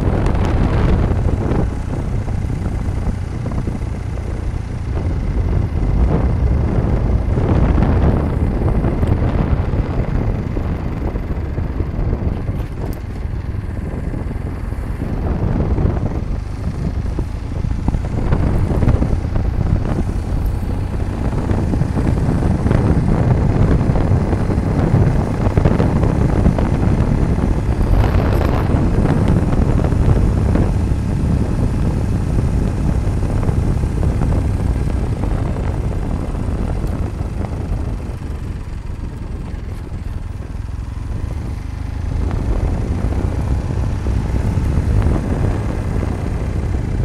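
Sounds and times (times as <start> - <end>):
vehicle engine and tyres rumbling: 0.0 - 47.0
wind on microphone: 0.0 - 47.0.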